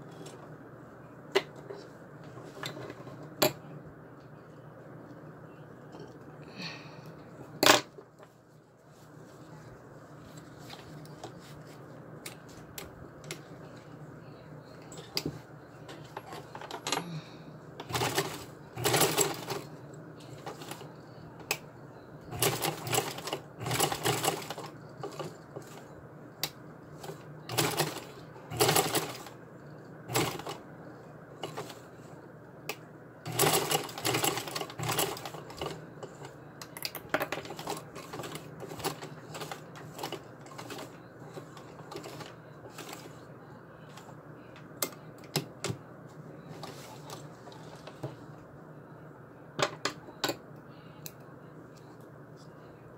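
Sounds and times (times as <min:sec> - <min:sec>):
sewing machine clattering: 0:17.8 - 0:19.7, 0:22.3 - 0:25.8, 0:27.0 - 0:29.3, 0:30.1 - 0:30.6, 0:33.3 - 0:36.3, 0:37.4 - 0:43.1.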